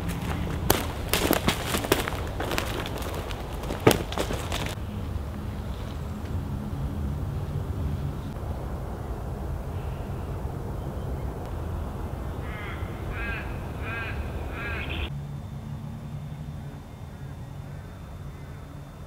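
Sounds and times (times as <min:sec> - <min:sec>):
bird calling: 0:00.0 - 0:06.2, 0:09.0 - 0:15.1, 0:16.6 - 0:19.0
low rumble of wind: 0:00.0 - 0:19.0.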